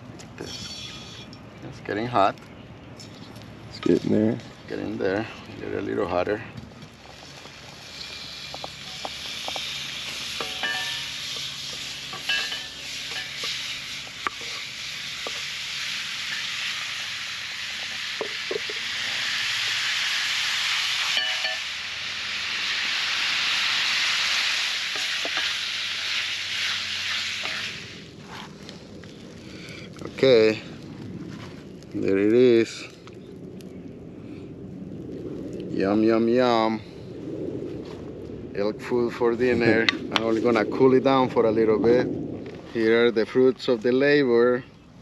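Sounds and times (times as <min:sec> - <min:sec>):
meat sizzling in hot oil: 0:06.9 - 0:29.2.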